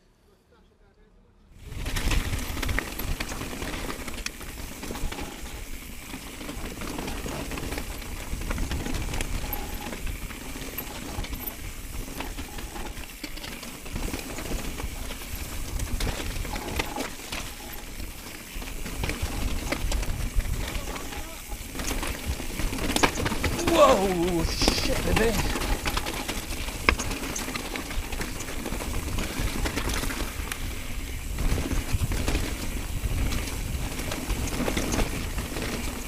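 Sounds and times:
wind rushing over microphone: 0:01.6 - 0:03.9, 0:28.9 - 0:35.5
bike rattling: 0:01.6 - 0:36.0
tyres crunching over loose stones: 0:01.6 - 0:36.0.

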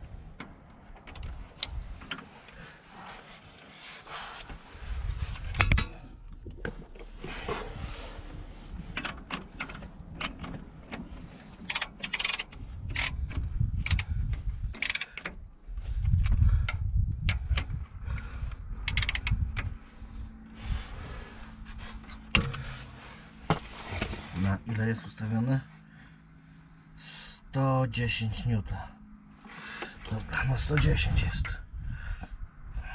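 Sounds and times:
socket wrench clicking on metal: 0:11.7 - 0:14.1, 0:14.8 - 0:15.3, 0:18.8 - 0:19.7
low rumble: 0:12.6 - 0:14.8, 0:15.4 - 0:24.0.

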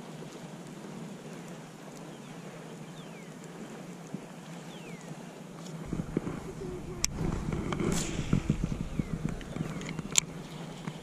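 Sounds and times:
wind on microphone: 0:05.8 - 0:11.0.

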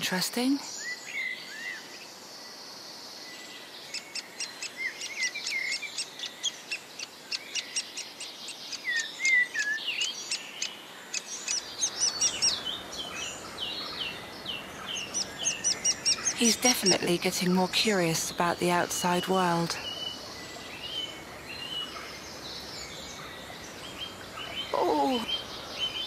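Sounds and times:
woodpecker chick high calls: 0:08.7 - 0:17.3.

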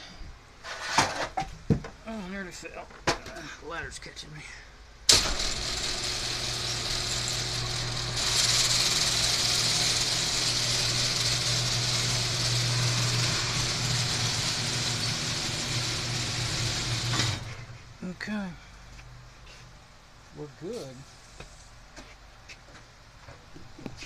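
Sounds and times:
garage door opener motor hum: 0:05.1 - 0:17.8.

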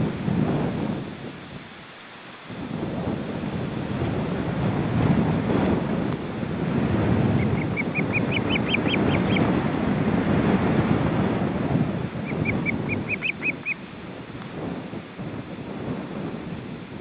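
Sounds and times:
wind rumbling on microphone: 0:00.0 - 0:17.0
osprey high chirps: 0:07.4 - 0:09.4, 0:12.2 - 0:13.8.

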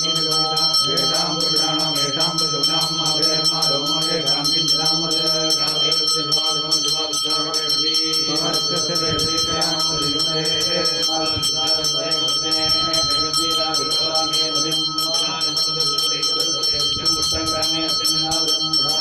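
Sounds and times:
bell ringing: 0:00.0 - 0:19.0
men chanting: 0:00.0 - 0:19.0.

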